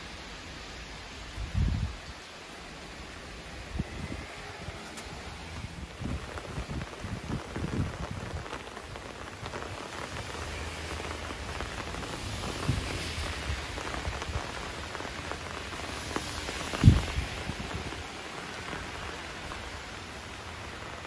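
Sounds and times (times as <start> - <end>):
steady rain falling: 0.0 - 21.0
raindrop ticks: 4.7 - 21.0.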